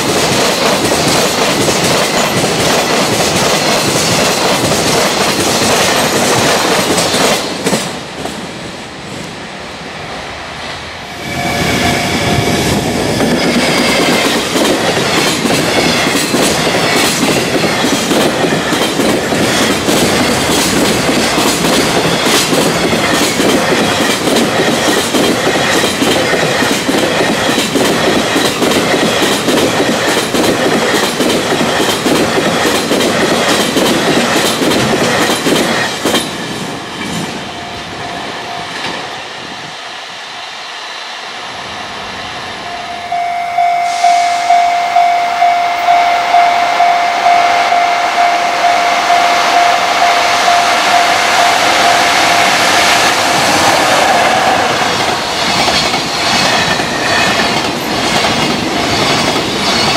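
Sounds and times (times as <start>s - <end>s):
train wheels clacking over rail joints: 0.0s - 8.5s, 12.5s - 37.4s, 50.4s - 59.9s
level crossing warning bell: 42.6s - 53.4s.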